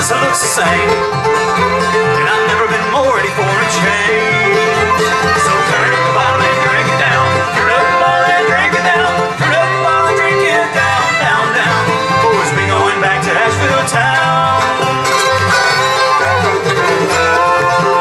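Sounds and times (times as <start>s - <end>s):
acoustic guitar: 0.0s - 18.0s
banjo: 0.0s - 18.0s
fiddle: 0.0s - 18.0s
upright bass: 0.0s - 18.0s.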